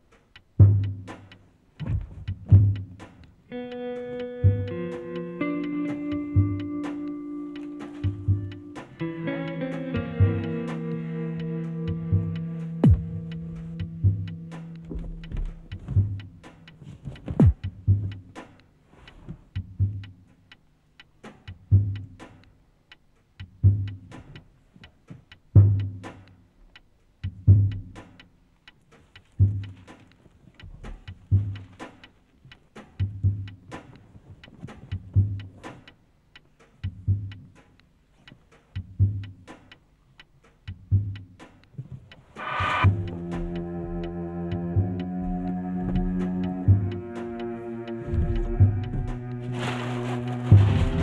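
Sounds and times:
deep thumps like a heartbeat: 0:01.8 - 0:03.0, 0:12.1 - 0:16.4, 0:17.0 - 0:18.3, 0:42.5 - 0:47.2, 0:48.0 - 0:49.3, 0:50.5 - 0:51.0
sharp clicks and ticks: 0:02.2 - 0:18.8, 0:19.5 - 0:51.0
low percussion thud: 0:42.4 - 0:47.0, 0:48.1 - 0:49.2
chord of held tones: 0:42.4 - 0:51.0.

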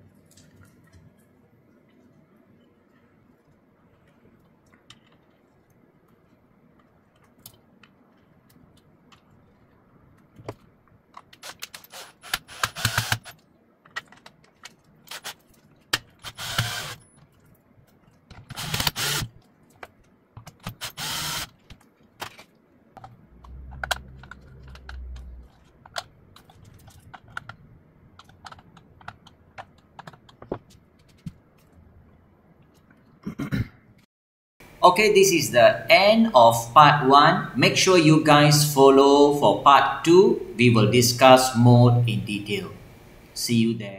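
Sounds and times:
cordless drill motor running: 0:11.8 - 0:13.3, 0:16.2 - 0:17.0, 0:18.5 - 0:19.3, 0:20.8 - 0:21.5
plastic clicks and knocks: 0:28.2 - 0:31.4.

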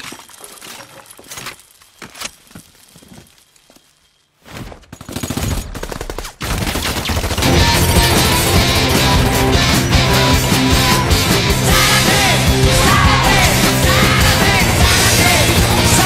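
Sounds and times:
machine gun firing: 0:04.9 - 0:08.2
rock music with steady beat: 0:07.4 - 0:16.0.

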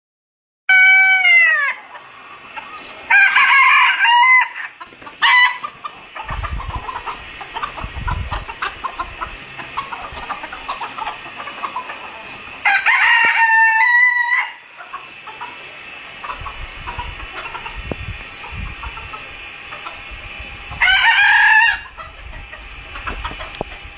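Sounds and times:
rooster crowing: 0:00.7 - 0:02.0, 0:03.1 - 0:05.7, 0:12.6 - 0:14.8, 0:20.8 - 0:22.1
chickens clucking: 0:00.7 - 0:23.9.

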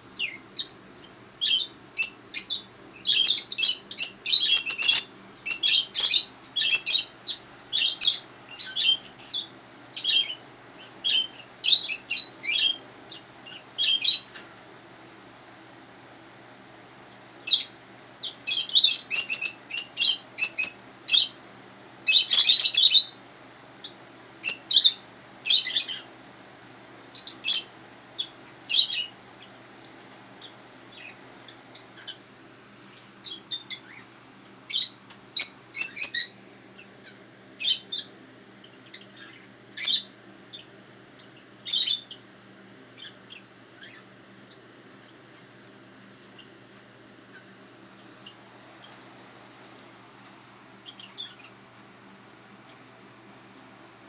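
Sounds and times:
small bird chirping: 0:00.0 - 0:14.7, 0:17.0 - 0:21.4, 0:22.1 - 0:23.2, 0:23.8 - 0:26.1, 0:27.1 - 0:29.6, 0:30.4 - 0:32.3, 0:33.2 - 0:34.1, 0:34.7 - 0:42.3, 0:43.0 - 0:45.6, 0:46.2 - 0:46.6, 0:47.3 - 0:49.0, 0:50.7 - 0:51.6, 0:52.4 - 0:53.2.

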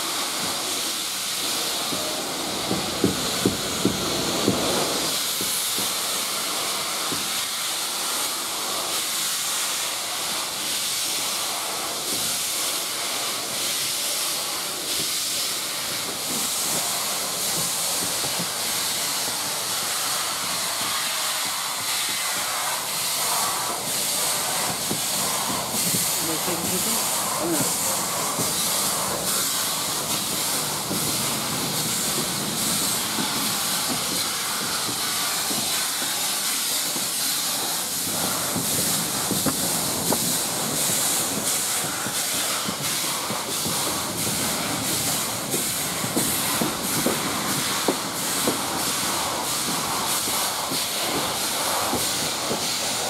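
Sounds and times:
steam locomotive hissing: 0:00.0 - 0:53.0.

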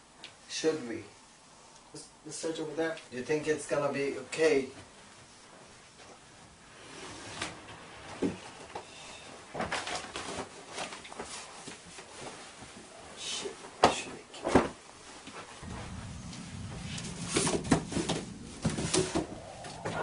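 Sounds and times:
sharp bangs: 0:15.6 - 0:20.0.

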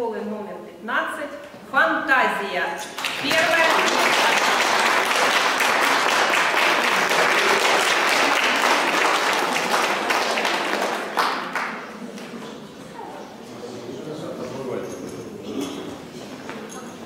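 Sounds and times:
audience applauding: 0:02.9 - 0:12.3.

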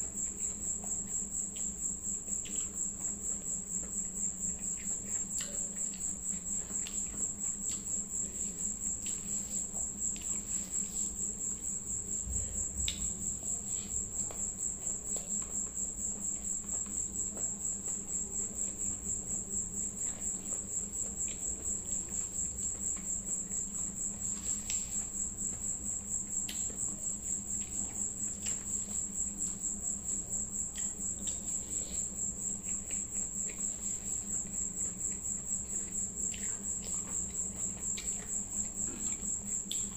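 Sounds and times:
chewing: 0:00.0 - 0:39.9
cricket chirping trill: 0:00.0 - 0:39.9
low steady hum: 0:00.0 - 0:39.9.

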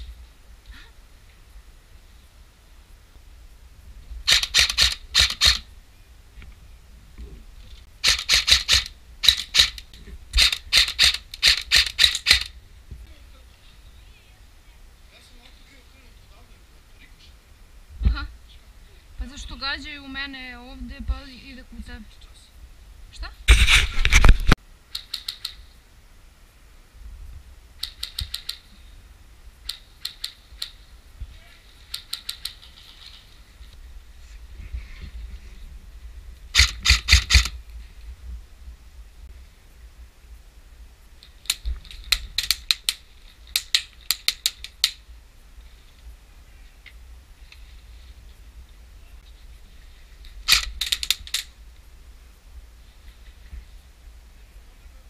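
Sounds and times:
airsoft guns firing: 0:04.3 - 0:05.7, 0:08.0 - 0:09.8, 0:10.4 - 0:12.6, 0:36.5 - 0:37.6.

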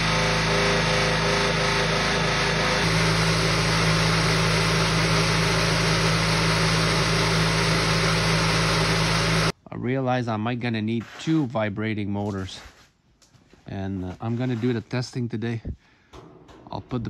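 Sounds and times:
vibrating motor humming and rattling: 0:00.0 - 0:09.5.

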